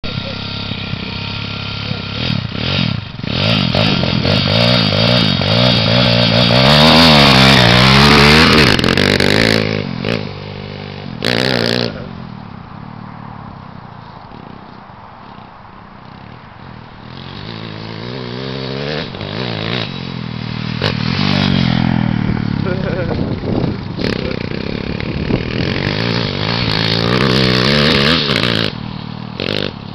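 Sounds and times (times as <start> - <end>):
motorbike engine revving: 0.0 - 13.3, 14.1 - 29.9.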